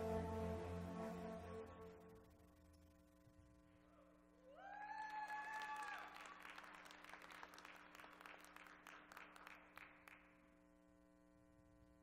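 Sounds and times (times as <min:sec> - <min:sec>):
audience applauding: 0:05.1 - 0:10.2.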